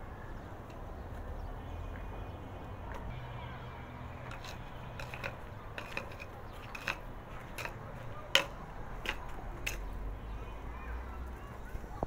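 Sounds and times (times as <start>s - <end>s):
hand tool tapping and scraping dirt: 4.2s - 10.0s.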